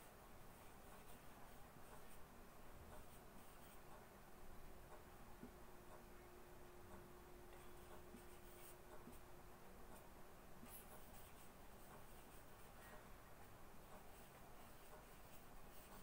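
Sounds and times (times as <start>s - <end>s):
marker pen writing on paper: 0.5s - 2.2s, 2.9s - 4.0s, 7.6s - 9.2s, 9.9s - 13.0s, 13.8s - 16.0s.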